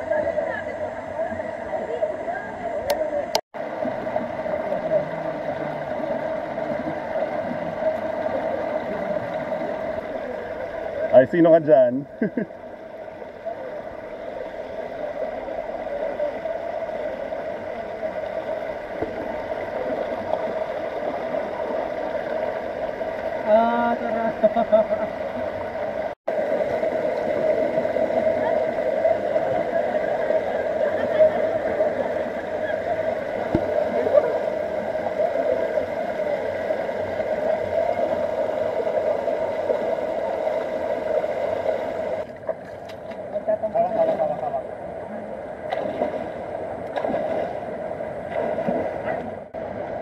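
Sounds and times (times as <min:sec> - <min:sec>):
stream rushing over stones: 0:03.0 - 0:12.0, 0:12.8 - 0:50.0
water splashing around person: 0:13.4 - 0:44.6, 0:45.6 - 0:50.0.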